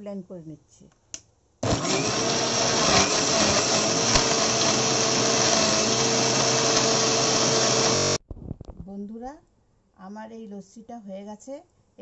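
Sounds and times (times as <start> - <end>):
mixer grinder motor whine: 1.6 - 8.2.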